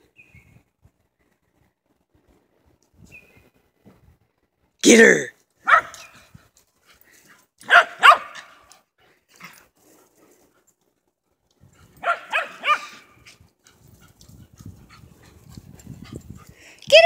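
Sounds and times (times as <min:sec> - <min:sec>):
dog barking: 0:05.6 - 0:06.2, 0:07.6 - 0:08.7, 0:12.0 - 0:13.2.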